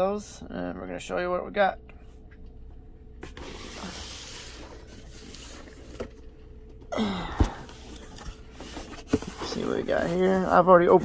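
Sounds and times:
cardboard boxes sliding: 3.2 - 6.1, 7.7 - 11.0
box thumping down: 7.2 - 7.7.

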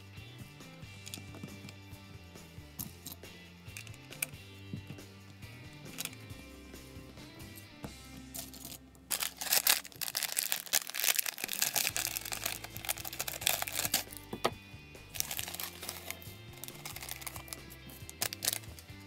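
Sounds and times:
background music: 0.0 - 19.0
plastic bag crinkling: 8.4 - 14.2, 15.2 - 18.8
scissors cutting plastic: 8.4 - 14.4, 15.2 - 18.9.

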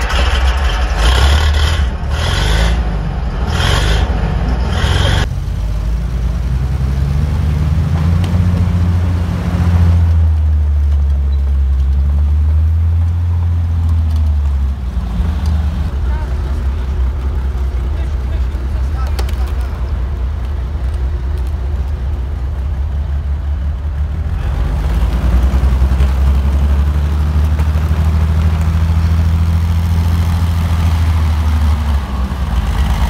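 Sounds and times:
pulsing scraping noise: 0.0 - 5.3
tracked vehicle engine rumbling: 0.0 - 33.0.

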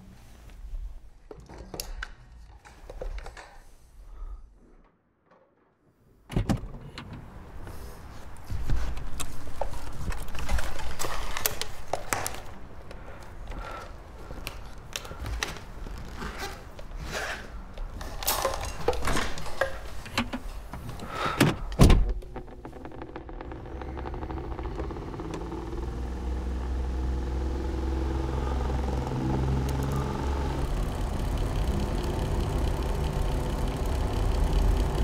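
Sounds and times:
fans being handled clicking: 8.3 - 16.0, 17.7 - 35.0
low rumble: 22.2 - 26.8.

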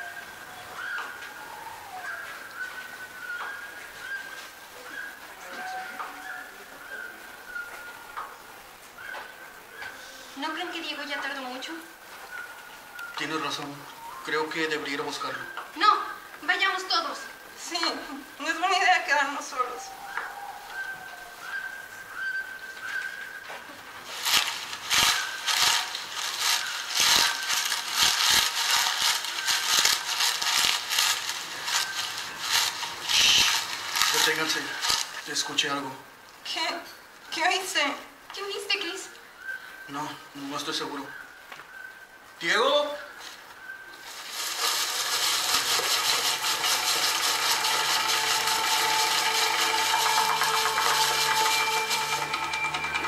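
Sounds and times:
footsteps crunching: 22.7 - 35.6
dense crackling and rustling: 23.6 - 36.0, 44.0 - 53.0.

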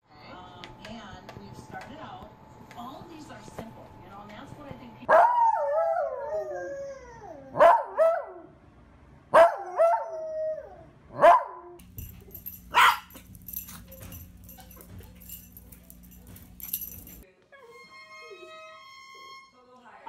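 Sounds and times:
dog howling: 5.1 - 8.4, 9.4 - 11.6
low steady hum: 11.8 - 17.2.

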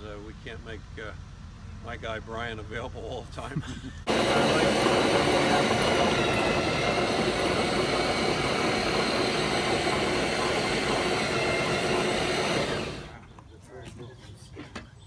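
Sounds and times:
electric drill whirring: 4.1 - 13.2.

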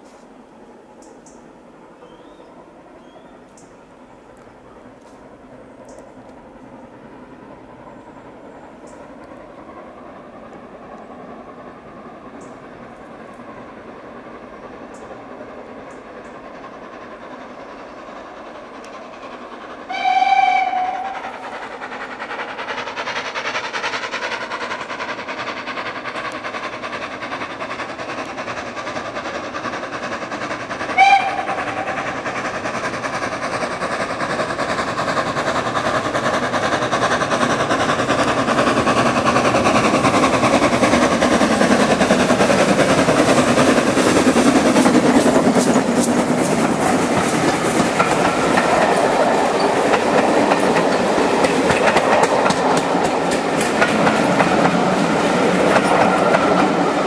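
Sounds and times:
train running: 0.0 - 57.0
steam locomotive whistle: 19.9 - 21.4, 30.9 - 32.3.

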